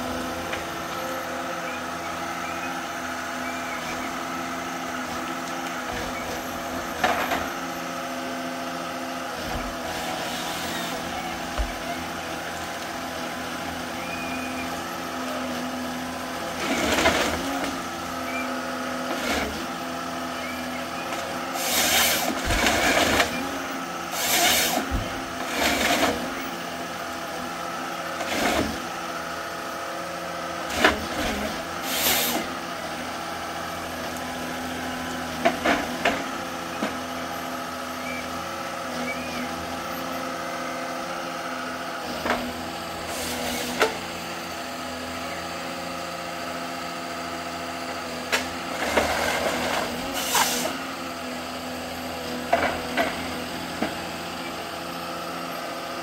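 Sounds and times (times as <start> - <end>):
harvester engine running: 0.0 - 56.0.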